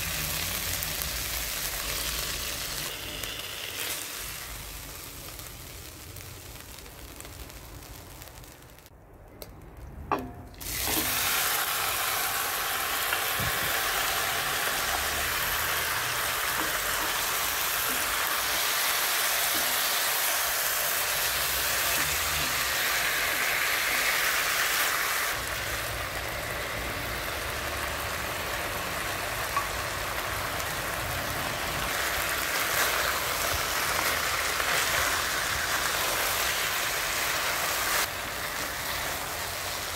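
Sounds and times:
chicken sizzling in a pot: 0.0s - 8.9s, 10.6s - 39.9s
pot clunk: 10.1s - 11.2s.

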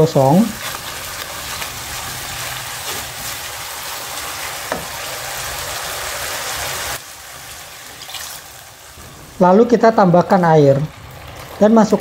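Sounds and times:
sauce sizzling in a wok: 0.0s - 12.0s
spatula stirring: 0.4s - 5.0s.

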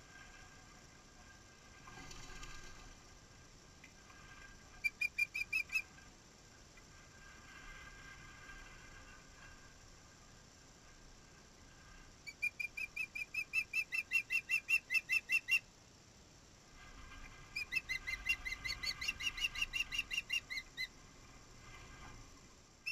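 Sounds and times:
bird chirping high whistles: 4.8s - 5.8s, 12.2s - 15.7s, 17.5s - 20.9s.

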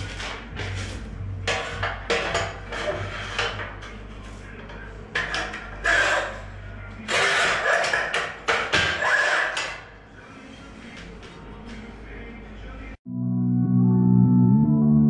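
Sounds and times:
scoring wheel rasping on tile: 0.0s - 3.9s, 5.2s - 6.5s, 7.1s - 8.2s, 8.8s - 11.0s.

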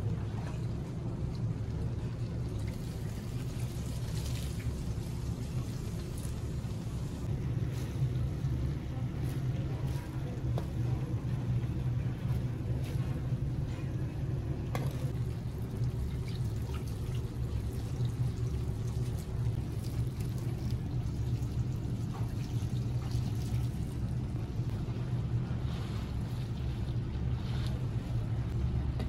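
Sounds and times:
low mechanical roar: 0.0s - 29.0s.

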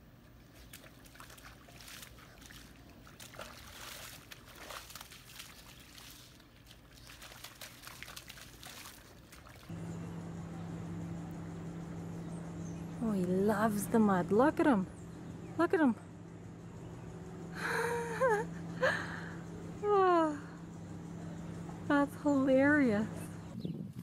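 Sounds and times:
dog splashing in mud: 0.4s - 9.7s
trickling water: 0.4s - 9.7s
steady hum: 9.6s - 23.6s.

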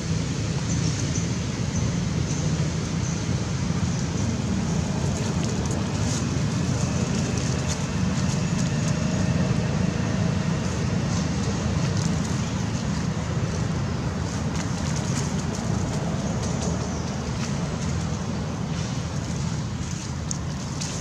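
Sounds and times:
low outdoor rumble: 0.0s - 21.0s.

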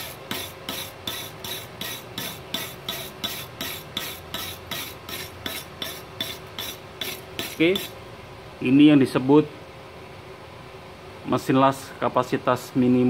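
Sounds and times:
wire brush scraping metal: 0.0s - 8.0s.

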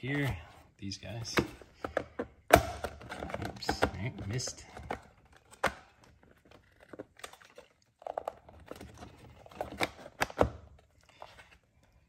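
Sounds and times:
plastic parts clicking and tapping: 1.2s - 10.8s.

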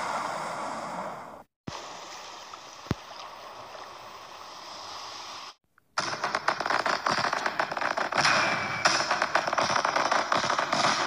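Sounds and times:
rushing water: 1.7s - 5.6s
fireworks crackling: 5.1s - 11.0s.

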